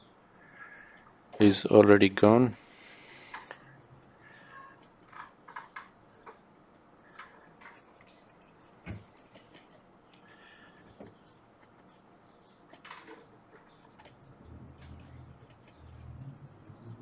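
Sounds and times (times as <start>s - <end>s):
cotton swab scratching: 5.7s - 12.9s, 13.5s - 17.0s.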